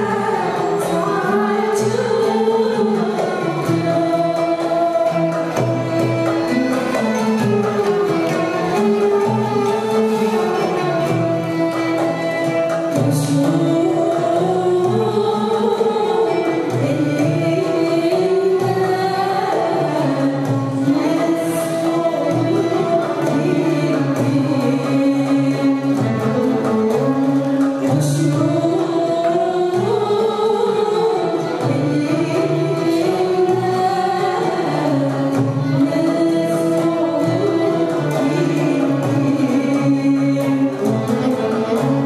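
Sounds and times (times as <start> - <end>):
traditional string ensemble: 0.0 - 42.0
woman singing: 0.0 - 42.0.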